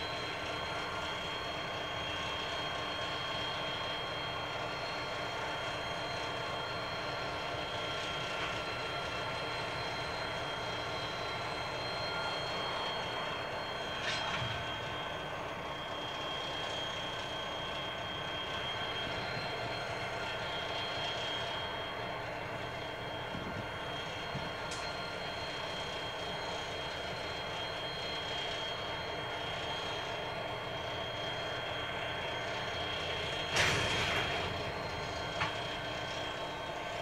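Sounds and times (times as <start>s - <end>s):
diesel locomotive idling: 0.0s - 37.0s
locomotive coupling clank: 33.5s - 35.7s.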